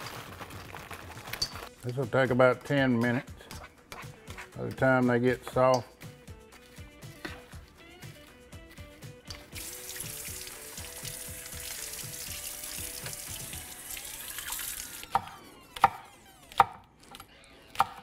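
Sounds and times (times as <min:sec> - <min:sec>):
soft background music: 0:00.4 - 0:18.0
kitchen tap running: 0:09.5 - 0:15.1
knife chopping on cutting board: 0:15.1 - 0:16.0.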